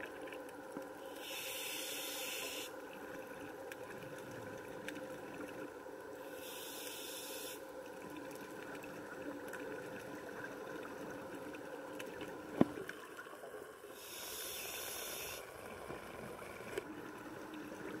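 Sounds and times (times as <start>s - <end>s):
underwater water hiss: 1.0s - 2.8s, 6.2s - 7.7s, 13.9s - 15.5s.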